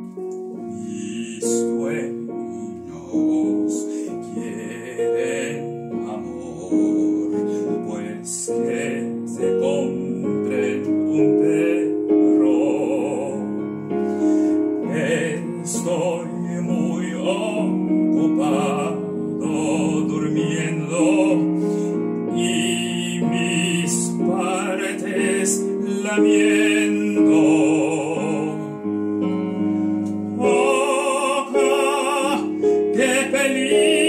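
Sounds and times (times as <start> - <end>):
piano accompaniment: 0.0 - 34.0
operatic singing with vibrato: 0.7 - 21.7, 22.4 - 28.8, 30.3 - 34.0.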